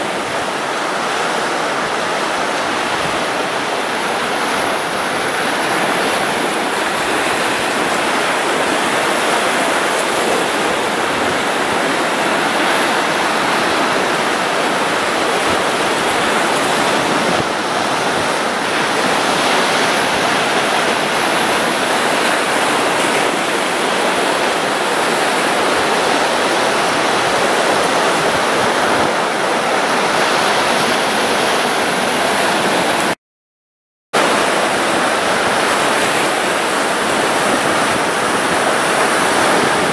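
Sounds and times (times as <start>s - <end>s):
waves breaking on rocks: 0.0s - 33.2s, 34.2s - 39.9s.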